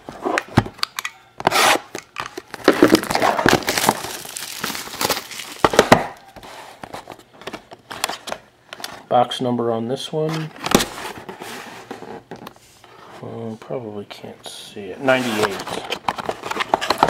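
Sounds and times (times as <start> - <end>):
plastic wrap tearing and crinkling: 1.5 - 6.0.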